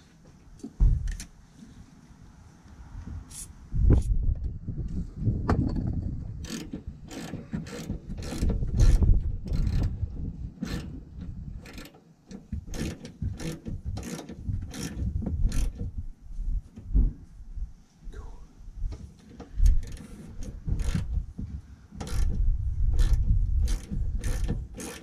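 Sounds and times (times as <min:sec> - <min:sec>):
tool knocking and rubbing metal: 0:05.5 - 0:16.0, 0:18.9 - 0:25.0
ratchet wrench clicking: 0:06.4 - 0:09.9, 0:11.6 - 0:12.0, 0:12.7 - 0:15.8, 0:19.7 - 0:21.1, 0:22.0 - 0:22.4, 0:23.0 - 0:25.0.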